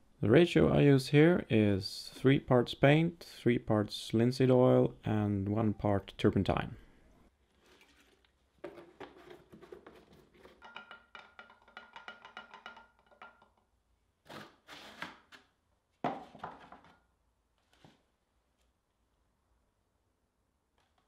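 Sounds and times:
stick stirring paint in glass jar: 7.8 - 13.7.

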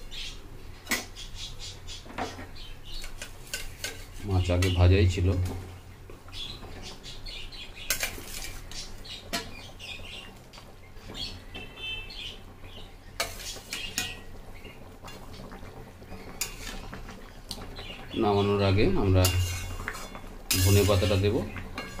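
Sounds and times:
spatula scraping metal pan: 3.0 - 4.8, 7.9 - 8.9, 13.2 - 14.2, 16.2 - 16.9, 19.2 - 22.0.

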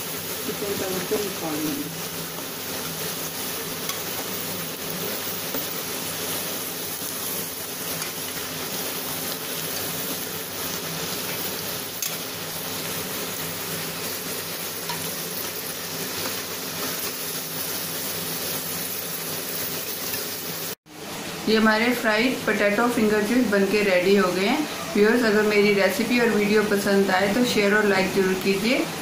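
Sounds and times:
food deep-frying in hot oil: 0.0 - 29.0
spoon stirring oil: 2.0 - 12.3, 14.0 - 17.4.

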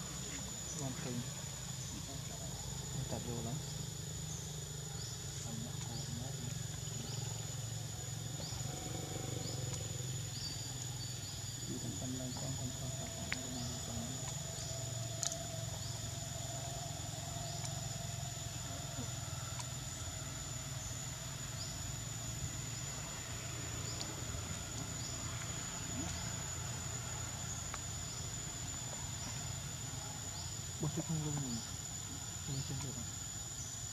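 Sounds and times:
high-pitched insect drone: 0.0 - 33.9
faint clicks: 15.1 - 15.4, 17.5 - 17.8, 19.5 - 19.7.

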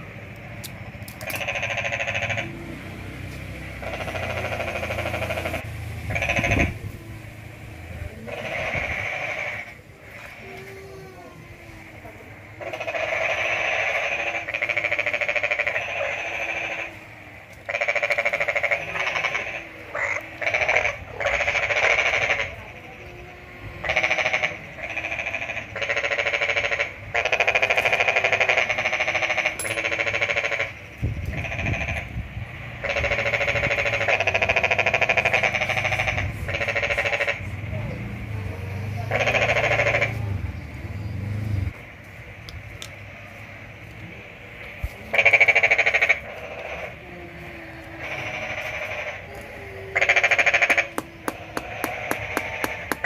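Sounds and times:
rapid pulsed animal calls: 3.8 - 7.1, 12.6 - 17.0, 38.5 - 41.2, 45.0 - 53.0.

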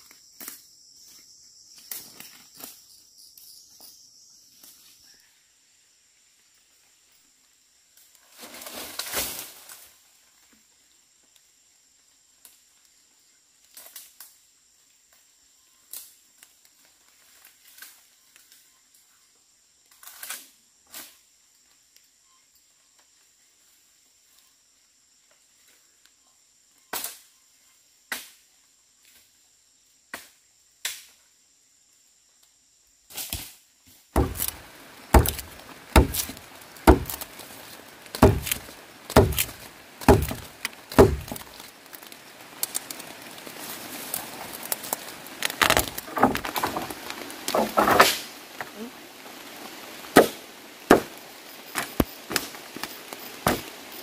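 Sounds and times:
firewood chopping strokes: 34.2 - 41.7, 44.9 - 48.8, 50.2 - 51.2, 51.8 - 53.8.

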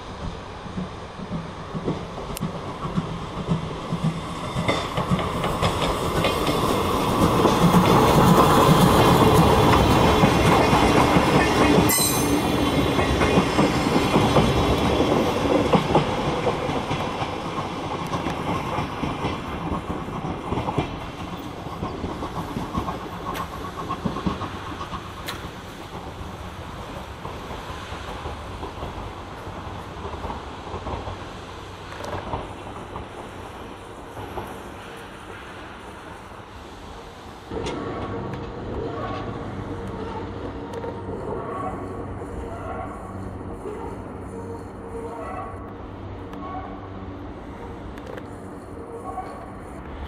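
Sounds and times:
steam locomotive passing: 0.0 - 50.0
wheels clacking over rail joints: 0.2 - 36.2.

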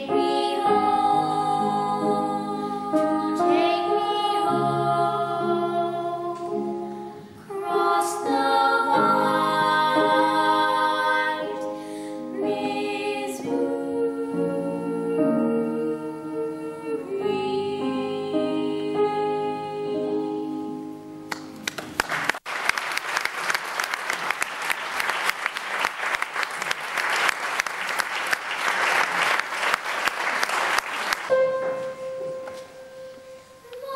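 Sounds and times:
girls singing duet: 0.0 - 21.0, 33.2 - 33.9
piano: 0.0 - 22.4, 23.2 - 33.9
audience applause: 21.3 - 31.4.

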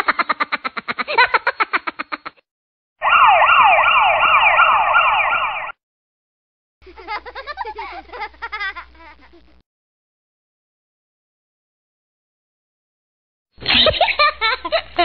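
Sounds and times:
electronic siren wail: 3.0 - 5.8.

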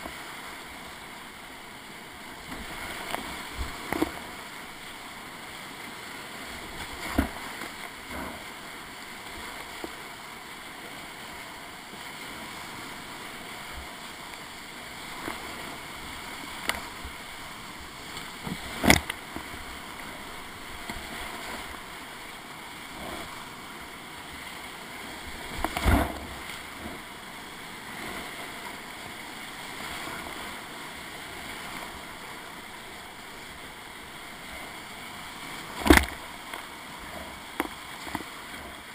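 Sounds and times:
whitewater rapids rushing: 0.0 - 38.9
knocks and splashes against boat: 18.4 - 19.5, 25.5 - 27.1, 35.7 - 36.3.

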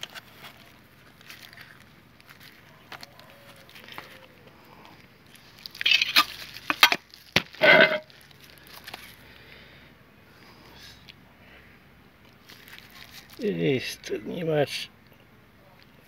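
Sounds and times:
loud scraping rasps: 7.6 - 8.1.

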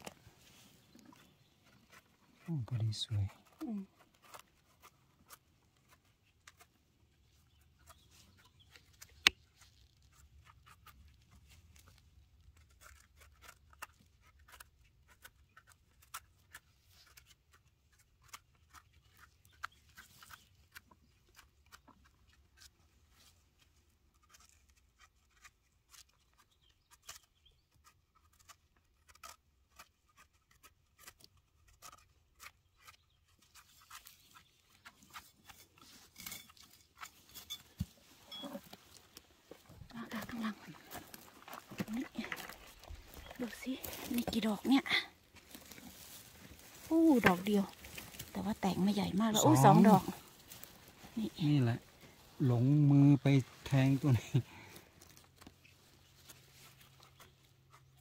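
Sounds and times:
crackles of dry leaf litter: 37.7 - 58.0.

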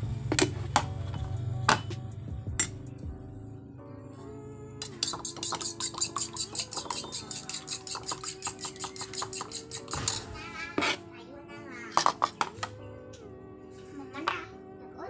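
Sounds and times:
background music: 0.0 - 15.0
utensil beating mixture in bowl: 4.8 - 11.0.

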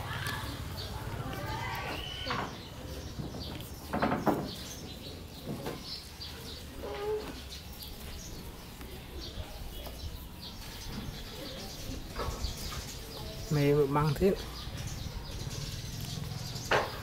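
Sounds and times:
small birds chirping: 0.0 - 17.0
low pitched bird call: 0.8 - 2.8.

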